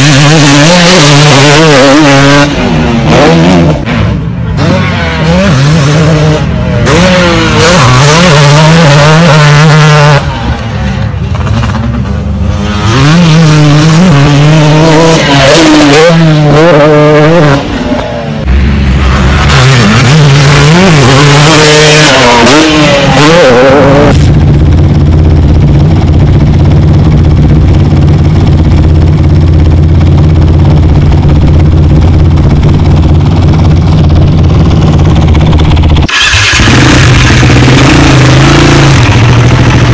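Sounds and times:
dirt bike engine revving: 0.0s - 39.9s
steady low drone: 23.7s - 39.9s.

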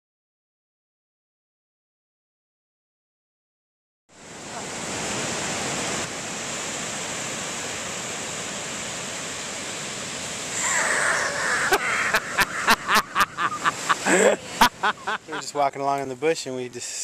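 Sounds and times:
ocean surf breaking: 4.2s - 16.4s.

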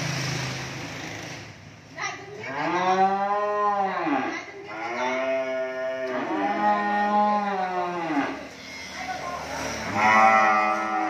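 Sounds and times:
cattle mooing: 2.4s - 8.6s, 9.6s - 11.0s.

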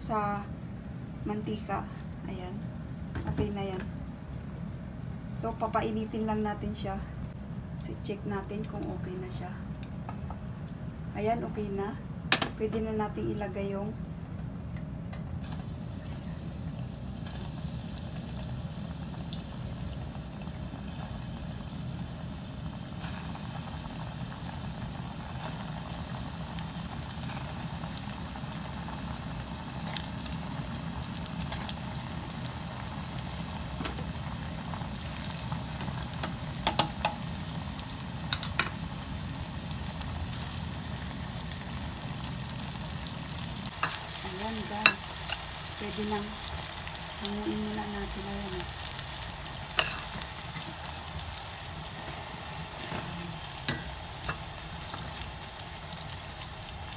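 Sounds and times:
meat deep-frying in oil: 15.4s - 56.9s.

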